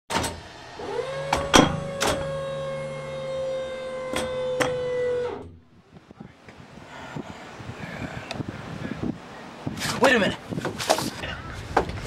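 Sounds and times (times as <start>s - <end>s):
low hum: 0.1s - 6.1s
electric motor whine: 0.3s - 5.6s.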